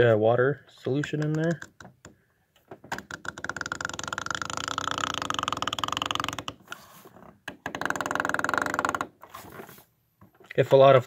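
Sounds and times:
syringe plunger creaking clicks: 0.8s - 6.8s, 7.5s - 9.3s.

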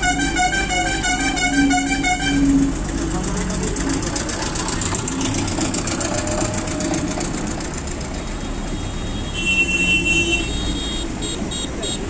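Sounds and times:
engine clattering: 0.0s - 8.9s
busy street rumble: 0.0s - 12.0s.

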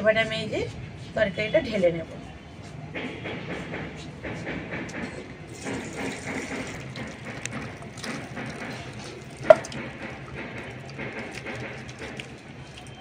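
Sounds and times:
thick curry sloshing: 5.5s - 13.0s.

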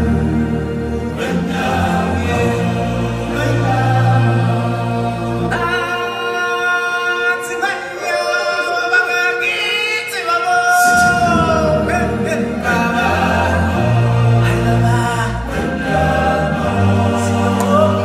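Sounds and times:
bass: 0.0s - 5.9s, 10.8s - 18.0s
group of voices singing: 0.0s - 18.0s.

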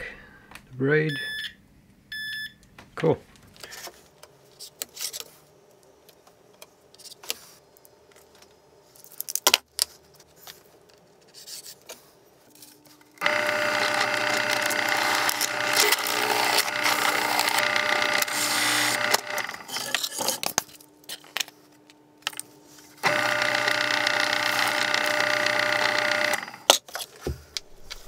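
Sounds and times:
pillar drill motor running: 13.2s - 20.0s, 23.0s - 26.7s.

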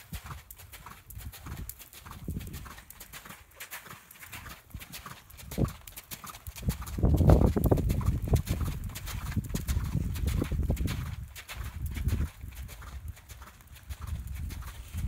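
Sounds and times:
horse hoofbeats on dirt: 0.0s - 15.0s.

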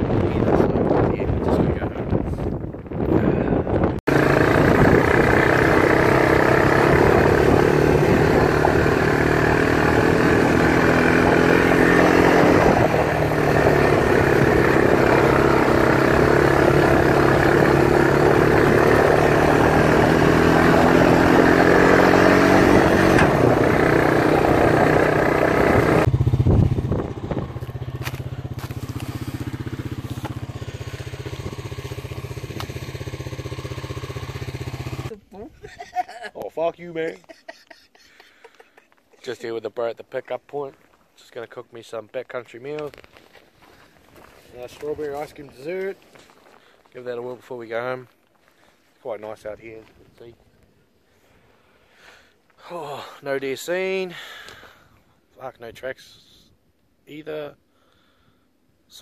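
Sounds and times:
quad bike engine running: 3.6s - 35.2s.

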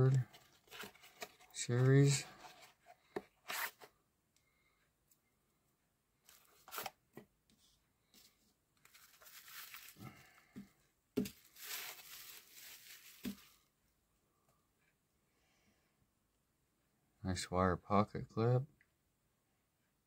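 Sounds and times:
bubble wrap crinkling: 8.8s - 10.3s, 11.2s - 13.6s.

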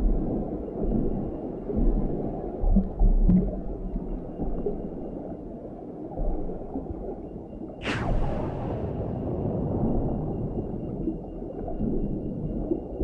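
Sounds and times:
underwater rumble and burbling: 0.0s - 13.0s
sharp sound effect hit: 7.8s - 9.3s.

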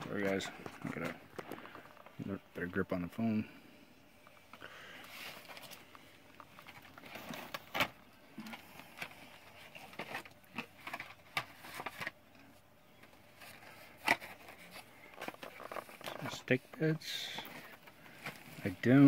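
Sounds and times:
packaging rustling: 4.3s - 12.2s, 13.2s - 19.0s.

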